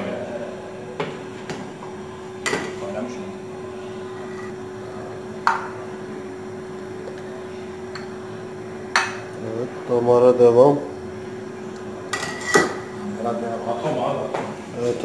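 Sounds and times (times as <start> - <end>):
metal ladle clinking on pot and bowl: 12.1 - 12.8.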